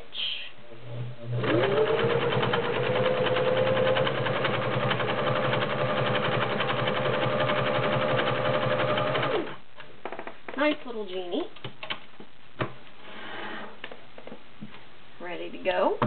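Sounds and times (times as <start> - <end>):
sewing machine running: 1.2 - 9.6.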